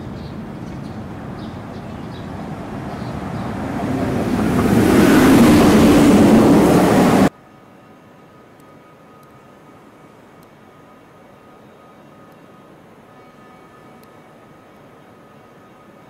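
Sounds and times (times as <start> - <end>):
train passing rumble: 0.0 - 7.3.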